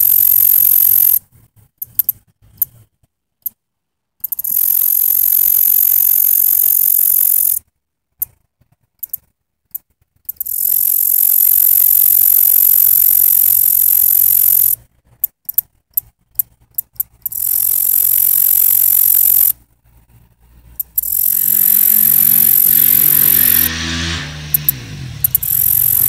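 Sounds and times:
katydid buzzing and ticking: 0:00.0 - 0:01.2, 0:04.2 - 0:07.6, 0:09.0 - 0:14.8, 0:15.4 - 0:19.6, 0:20.8 - 0:23.7, 0:24.5 - 0:26.0.

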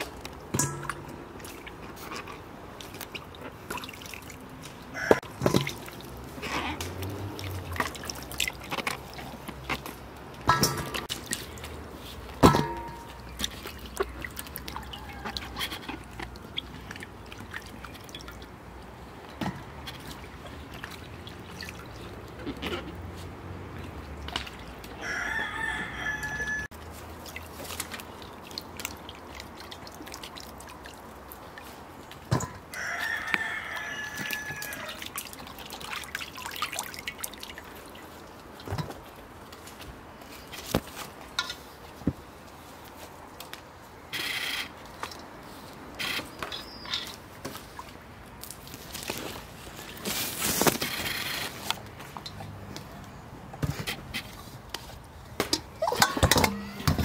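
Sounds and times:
rooster crowing: 0:04.9 - 0:05.2, 0:14.7 - 0:15.6, 0:25.0 - 0:26.7, 0:32.7 - 0:35.0.

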